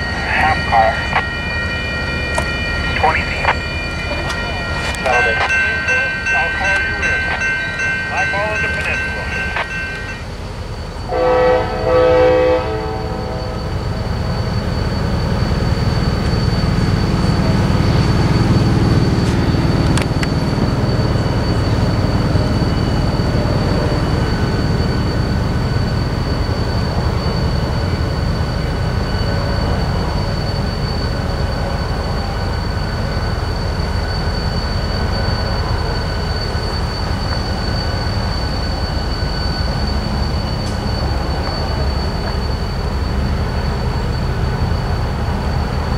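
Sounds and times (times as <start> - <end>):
locomotive horn blast: 11.1 - 13.6.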